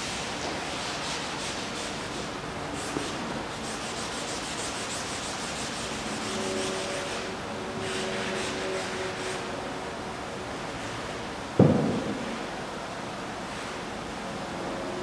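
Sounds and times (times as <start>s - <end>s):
hand scrubbing canvas: 0.0s - 9.5s.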